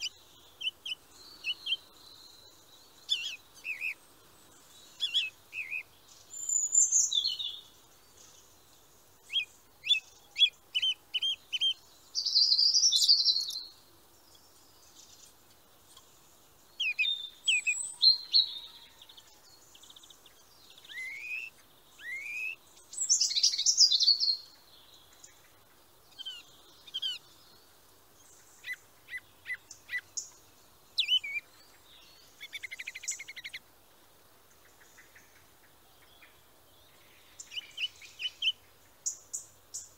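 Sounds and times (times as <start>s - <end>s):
songbirds calling and singing: 0.0s - 39.9s.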